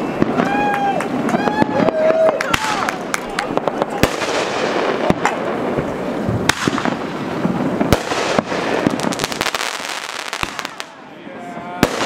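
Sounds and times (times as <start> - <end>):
firework crackle: 0.0 - 12.0
firework shells bursting: 2.5 - 11.0.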